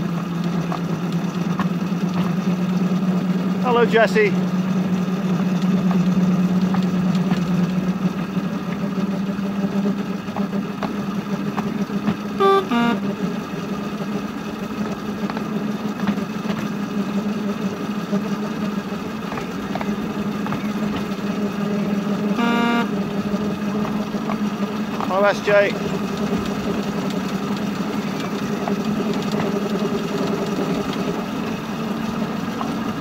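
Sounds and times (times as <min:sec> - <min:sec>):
locomotive engine droning: 0:00.0 - 0:33.0
short pitched call: 0:12.4 - 0:13.1.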